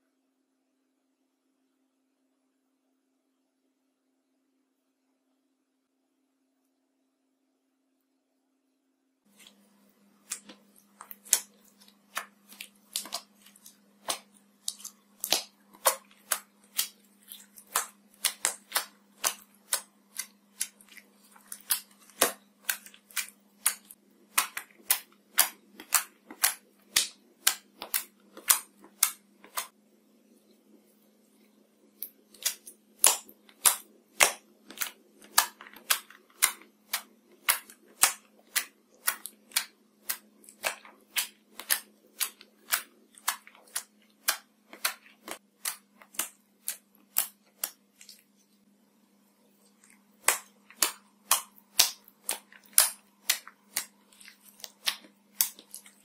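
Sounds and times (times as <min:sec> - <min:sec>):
slime clicking and popping: 0:10.2 - 0:29.7, 0:32.0 - 0:48.2, 0:49.7 - 0:56.0.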